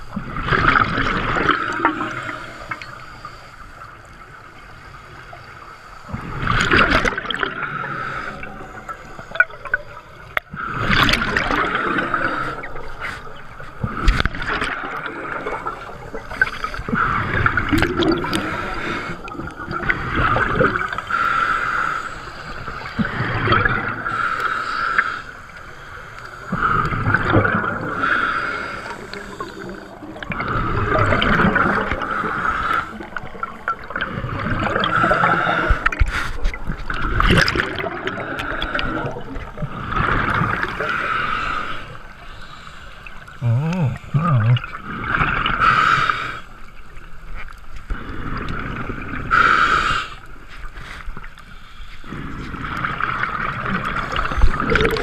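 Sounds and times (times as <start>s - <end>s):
gurgling exhaled bubbles: 0.0s - 5.5s, 6.1s - 50.5s, 52.0s - 55.0s
regulator hissing inhalation: 20.0s - 23.3s, 27.8s - 31.0s.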